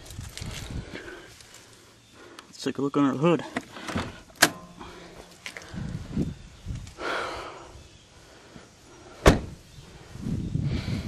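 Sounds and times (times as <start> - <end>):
hood clunk: 3.5 - 5.6.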